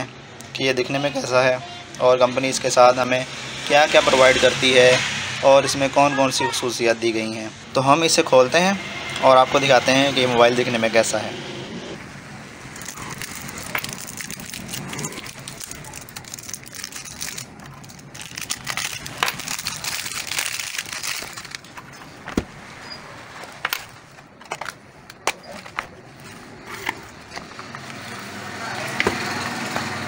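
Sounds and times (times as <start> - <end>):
plastic shrink-wrap tearing: 12.8 - 21.9.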